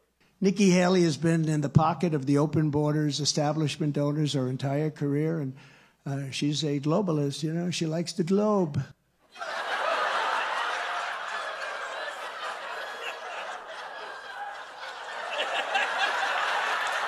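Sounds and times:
studio audience laughing: 0:09.3 - 0:17.0.

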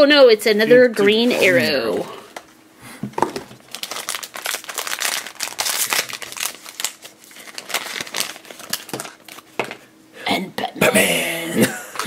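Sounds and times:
foil bag tearing and crinkling: 0:03.3 - 0:09.6.

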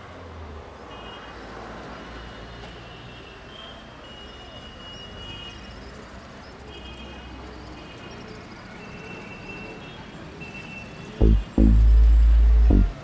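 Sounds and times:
high-pitched tones: 0:11.2 - 0:13.0.

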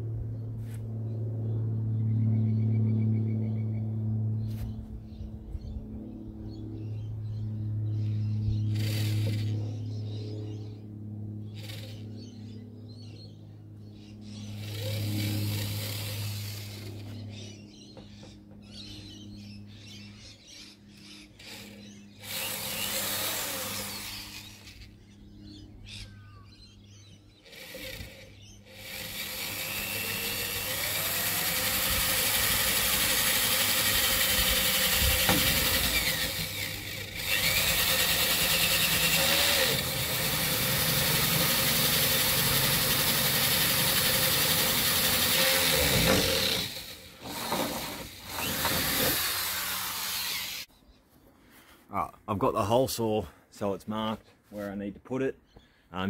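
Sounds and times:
power drill through sheet metal: 0:08.8 - 0:09.6, 0:14.6 - 0:17.2, 0:21.4 - 0:24.9, 0:27.5 - 0:50.7.

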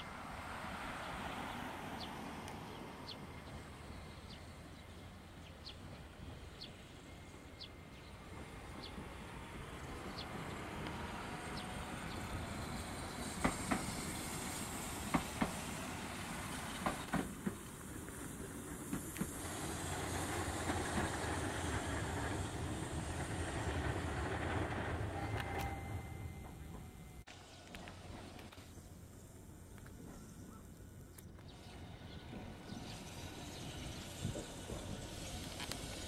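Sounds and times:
tram running rumble: 0:00.0 - 0:36.0
faint high chirp: 0:24.7 - 0:27.2.

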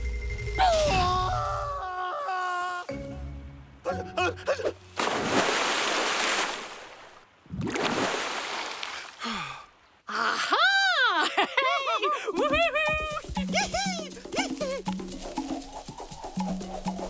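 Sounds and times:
water splashing: 0:04.9 - 0:09.4
cartoon character high voice: 0:12.4 - 0:14.8.

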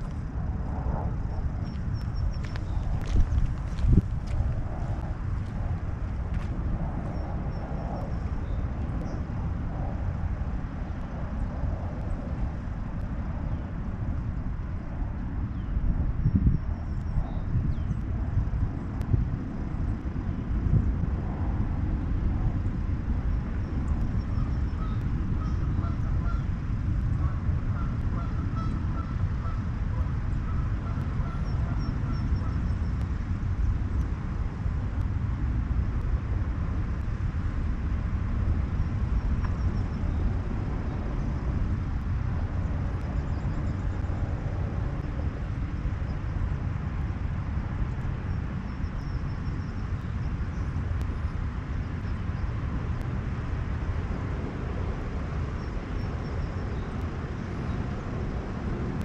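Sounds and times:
low outdoor rumble: 0:00.0 - 0:59.0
faint bird calls: 0:27.2 - 0:33.0.

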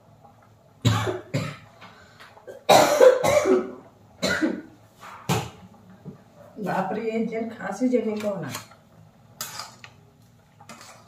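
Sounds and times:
woman coughing: 0:02.5 - 0:04.7.

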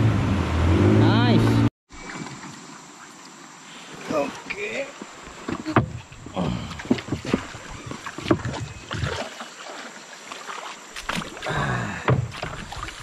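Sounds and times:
splashing in shallow water: 0:01.9 - 0:13.0
knocks on a wooden boat hull: 0:12.1 - 0:12.4.

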